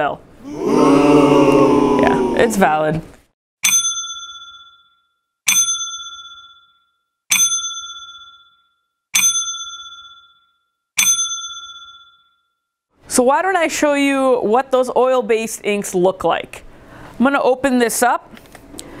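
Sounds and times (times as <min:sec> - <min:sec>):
bell-like ding: 0:03.6 - 0:12.6.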